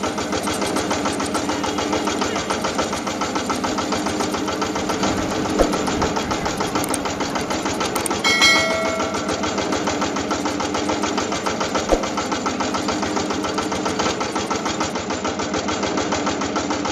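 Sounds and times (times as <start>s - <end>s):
small engine chugging: 0.0s - 16.9s
bright ding: 8.2s - 9.8s.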